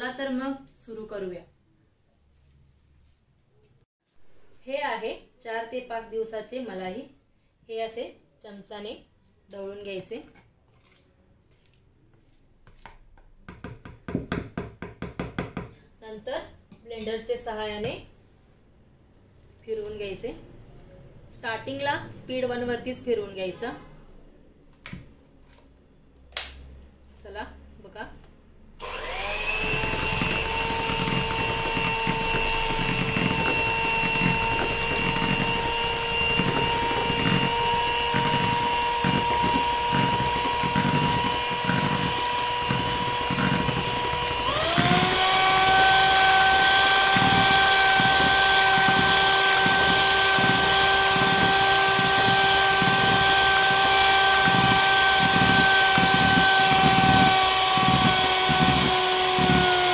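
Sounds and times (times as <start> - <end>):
electric hand mixer whining: 28.8 - 59.9.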